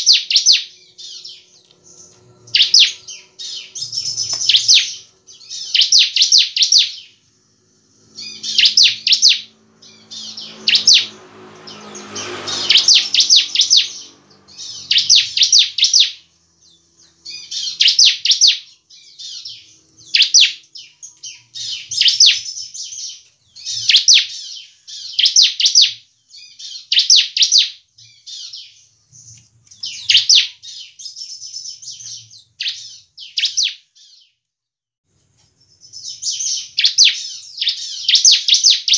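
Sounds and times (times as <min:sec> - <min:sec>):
bird chattering song: 0:00.0 - 0:34.3, 0:35.5 - 0:38.9
low rushing noise: 0:07.2 - 0:15.1.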